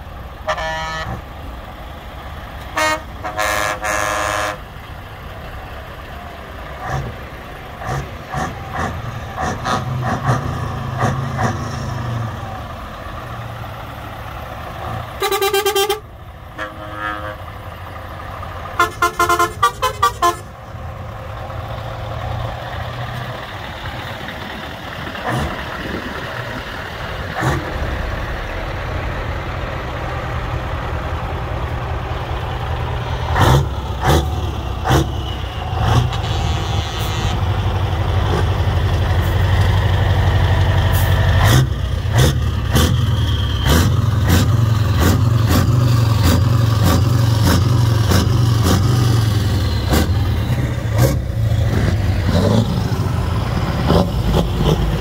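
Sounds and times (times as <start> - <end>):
truck engines rumbling: 0.0 - 55.0
truck horn blast: 0.4 - 1.3, 2.6 - 4.8, 14.8 - 17.6, 18.7 - 20.6, 33.4 - 37.7
short horn toots: 0.5 - 1.2, 15.2 - 16.0, 16.6 - 17.4, 36.0 - 37.6.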